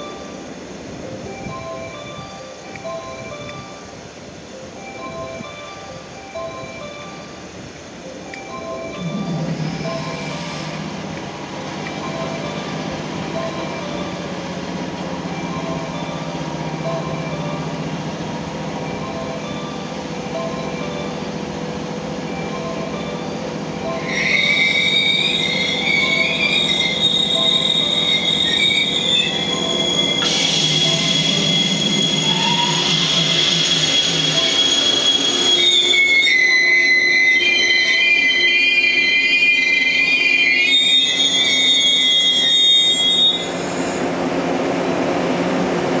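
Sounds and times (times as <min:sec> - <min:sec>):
train running noise: 0:00.0 - 0:46.0
train wheels squealing on rail: 0:06.7 - 0:44.2
hiss: 0:09.7 - 0:11.1, 0:30.2 - 0:35.5, 0:43.4 - 0:44.2.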